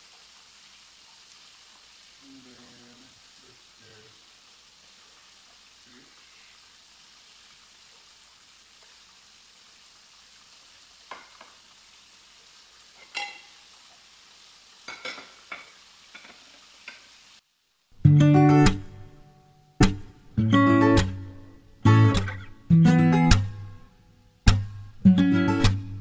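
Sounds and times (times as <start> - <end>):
fish sizzling in a frying pan: 0.0 - 19.2
kitchenware clinks and knocks: 13.0 - 13.5, 14.9 - 16.5
acoustic guitar music: 18.0 - 26.0.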